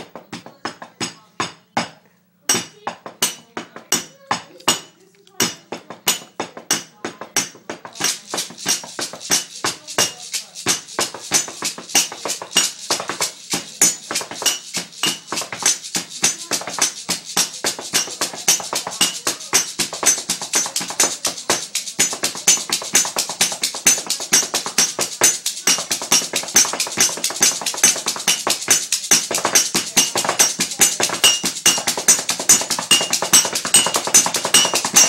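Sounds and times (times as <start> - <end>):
spoon and hands tapping mugs: 0.0 - 35.0.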